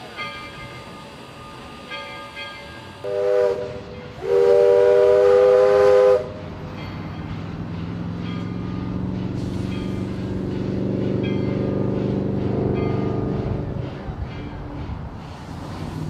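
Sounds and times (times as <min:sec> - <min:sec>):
steam locomotive whistle: 0:02.9 - 0:06.4.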